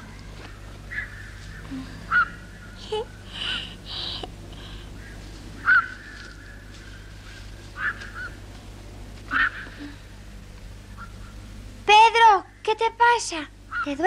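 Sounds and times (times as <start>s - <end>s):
bird squawking: 0.0s - 3.6s, 4.8s - 8.5s, 9.3s - 10.0s, 10.9s - 11.5s, 13.6s - 14.0s
faint background hum: 0.0s - 14.0s.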